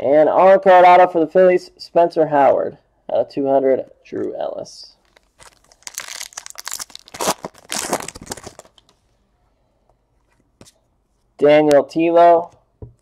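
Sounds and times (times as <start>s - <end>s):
card pack wrapper crinkling: 5.0s - 9.0s
cards rustling: 5.0s - 9.0s.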